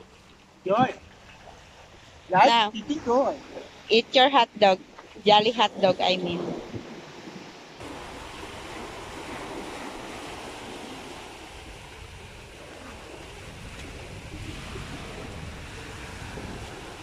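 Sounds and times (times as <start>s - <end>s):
waves washing up beach: 0.0s - 17.0s
wind rumbling on microphone: 0.0s - 17.0s.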